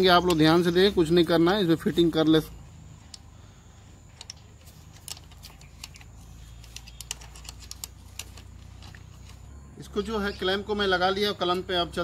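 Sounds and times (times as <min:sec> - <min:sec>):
small clicks and taps of clamp: 0:04.2 - 0:09.4.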